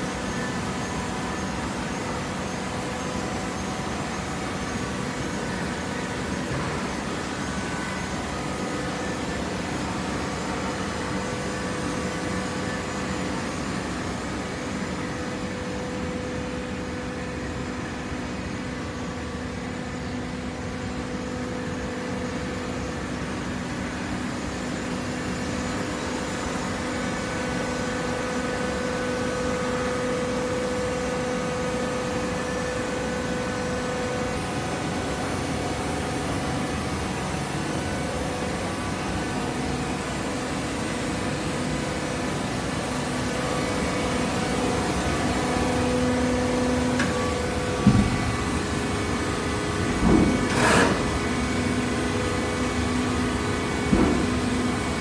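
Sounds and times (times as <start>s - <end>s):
baler machine humming: 26.3s - 55.0s.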